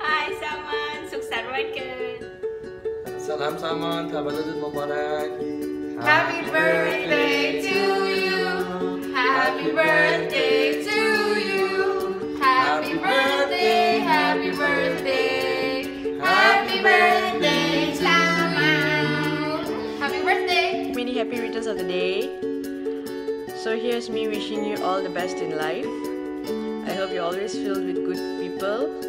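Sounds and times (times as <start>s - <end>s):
instrumental accompaniment: 0.0s - 29.0s
voices singing: 6.0s - 20.5s.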